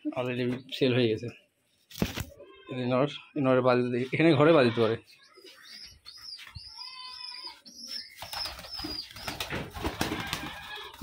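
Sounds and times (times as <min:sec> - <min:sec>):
pigeons calling: 0:04.8 - 0:11.0
pigeon wings flapping: 0:08.2 - 0:11.0.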